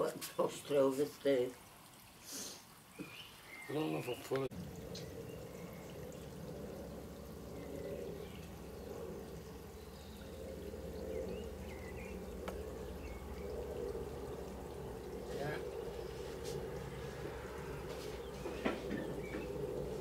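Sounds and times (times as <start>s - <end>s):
jet engines rumbling overhead: 4.7s - 20.0s.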